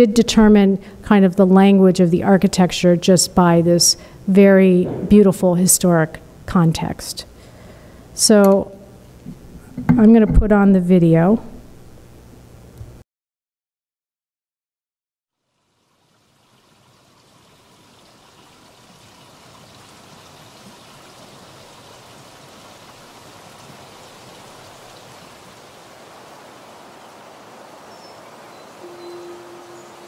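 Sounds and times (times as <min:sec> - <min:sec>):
trickling water: 0:15.4 - 0:30.0
steady low tone: 0:28.8 - 0:30.0.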